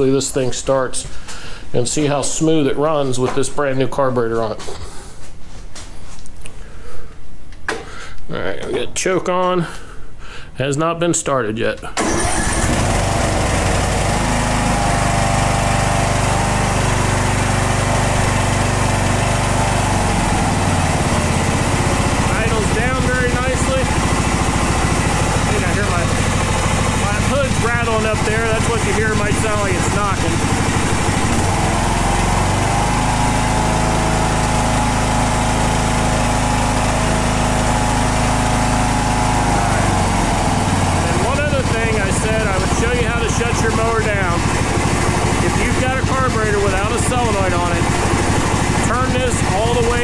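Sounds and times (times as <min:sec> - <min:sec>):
mower engine running: 0:12.0 - 0:50.0.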